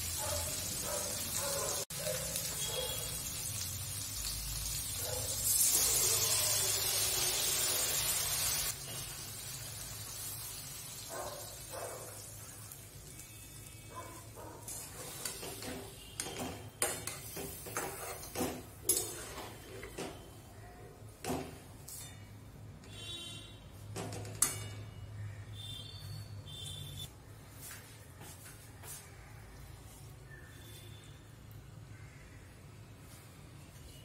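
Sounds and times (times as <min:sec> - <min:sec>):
spatula scraping a metal pan: 0:14.7 - 0:20.3.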